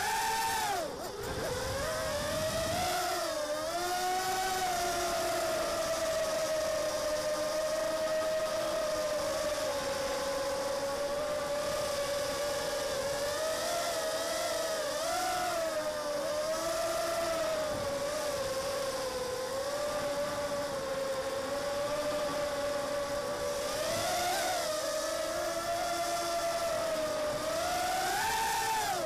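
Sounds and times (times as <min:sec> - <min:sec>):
drone motors whining: 0:00.0 - 0:29.0.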